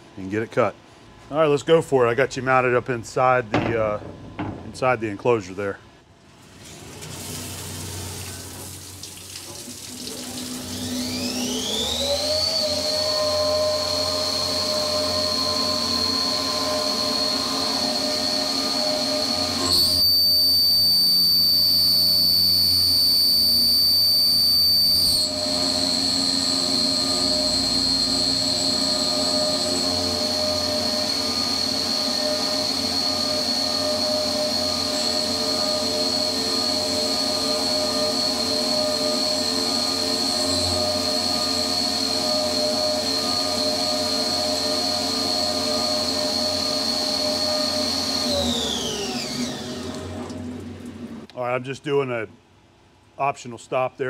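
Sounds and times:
mill spindle whine: 0.0s - 6.1s, 9.4s - 51.3s
coolant hissing: 6.4s - 11.7s
end mill cutting steel: 10.2s - 50.0s.

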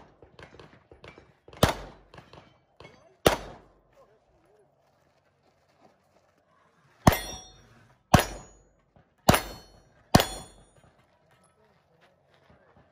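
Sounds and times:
handgun shots: 0.0s - 3.7s, 8.1s - 8.6s, 9.3s - 10.6s
steel target plate ringing: 7.1s - 8.7s, 9.3s - 10.7s.

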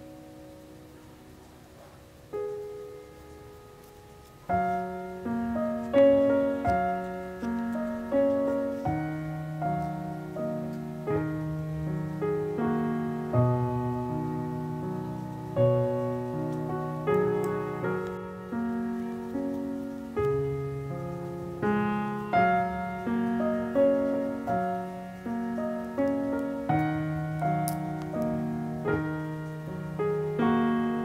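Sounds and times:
soft solo piano music: 0.0s - 31.0s.

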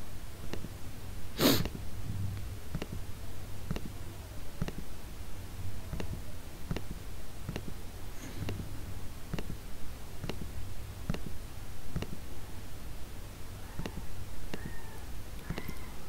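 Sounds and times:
low steady hum: 0.0s - 16.0s
computer mouse clicking: 2.7s - 3.0s, 3.7s - 4.0s, 4.6s - 4.9s, 5.9s - 7.8s, 9.3s - 9.6s, 10.2s - 10.5s, 11.1s - 12.2s, 13.8s - 15.9s.

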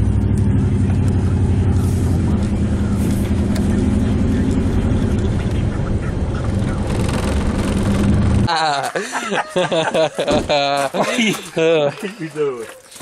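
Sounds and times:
vehicle engine hum: 0.0s - 8.6s
road noise: 0.0s - 13.0s.

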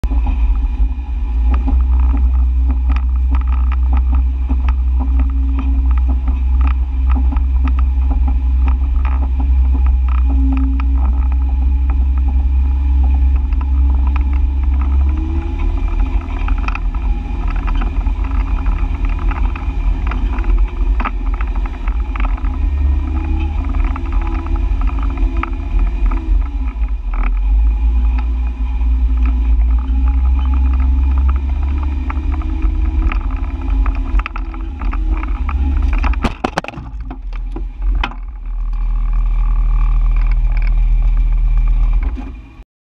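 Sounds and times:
vehicle engine rumbling: 0.0s - 42.6s
knocks and rattles over rocks: 1.4s - 42.3s.

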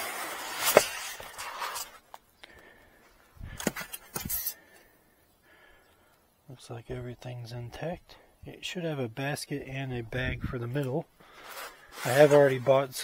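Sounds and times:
packing foam rustling and creaking: 0.0s - 2.2s, 10.8s - 13.0s.

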